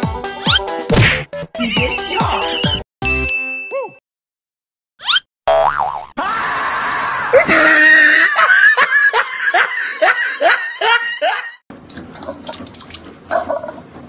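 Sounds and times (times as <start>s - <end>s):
person laughing: 7.4s - 11.6s.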